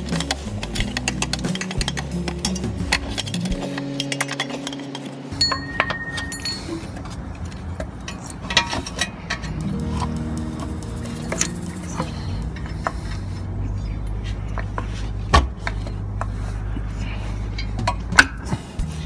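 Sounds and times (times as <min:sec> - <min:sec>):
metallic clinks of tools and parts: 0:00.0 - 0:10.1
low hum: 0:00.0 - 0:19.0.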